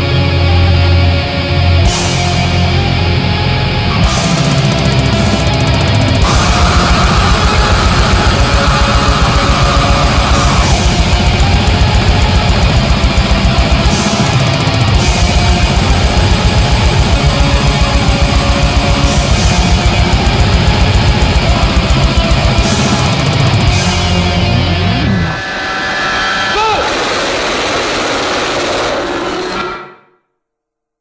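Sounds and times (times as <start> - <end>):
distorted guitars: 0.0 - 30.1
fast dense drumming: 4.0 - 24.8.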